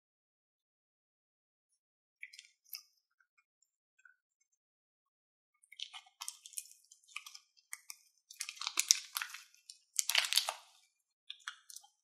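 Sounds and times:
plastic bag of slime crinkling: 8.3s - 11.9s.

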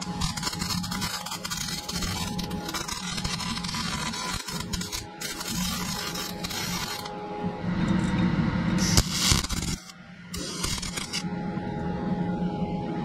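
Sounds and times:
welding arc crackling: 0.0s - 7.1s, 8.8s - 11.2s
steady low hum: 0.0s - 13.0s.

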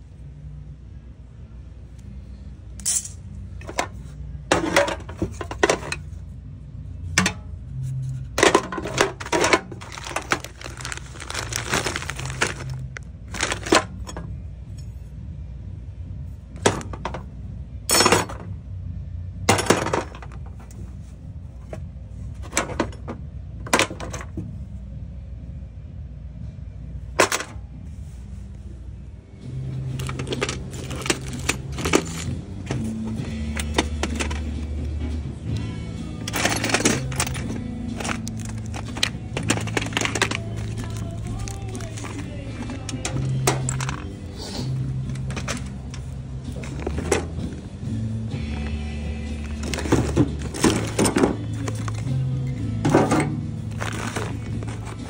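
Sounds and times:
metal tools clinking in toolbox: 2.8s - 6.2s, 8.3s - 14.8s, 17.9s - 18.5s, 19.5s - 20.8s, 29.9s - 34.8s, 36.1s - 47.7s, 49.4s - 55.0s.

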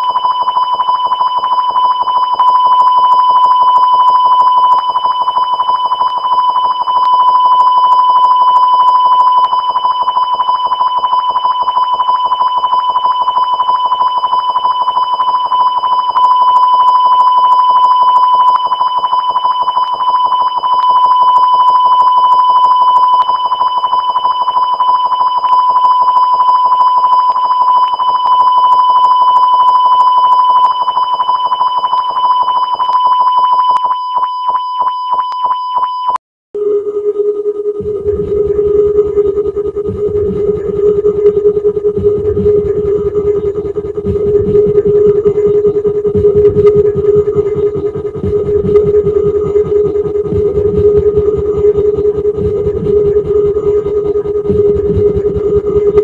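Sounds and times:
fluttering electronic tone: 30.6s - 56.0s.

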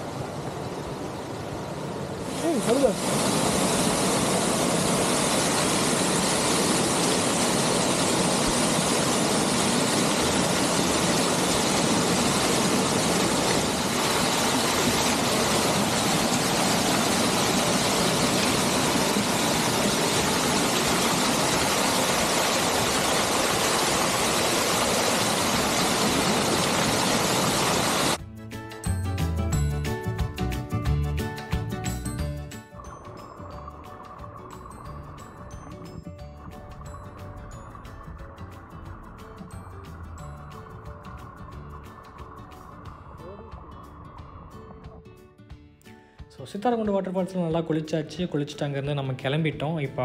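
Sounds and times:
waterfall rushing and splashing: 0.0s - 28.2s.

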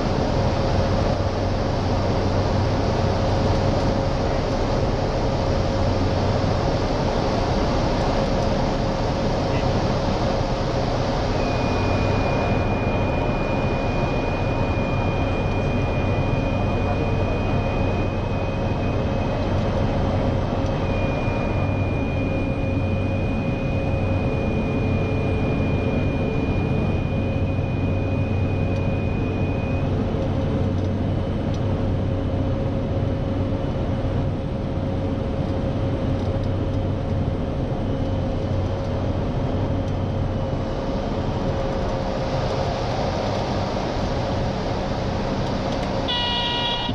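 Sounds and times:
propeller engine droning: 0.0s - 46.9s
thin high whine: 7.8s - 30.0s, 46.0s - 46.9s.

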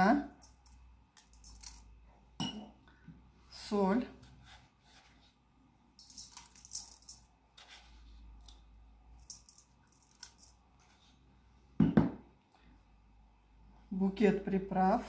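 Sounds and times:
salt grains rattling: 0.3s - 1.9s, 6.0s - 7.3s, 9.2s - 10.7s.

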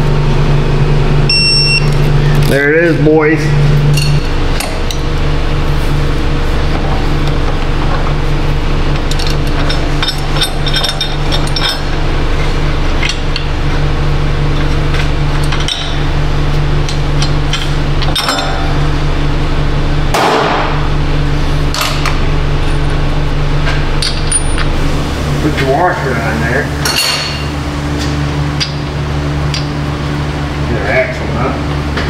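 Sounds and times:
steady low hum: 0.0s - 32.0s
tools and steel parts clinking: 9.1s - 11.9s.

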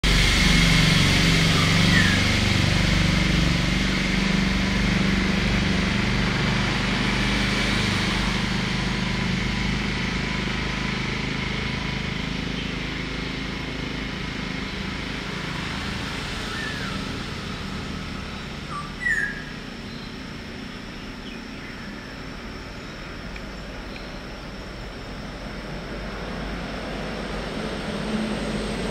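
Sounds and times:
engine noise: 0.0s - 28.9s
sharp bird call: 18.7s - 19.6s.

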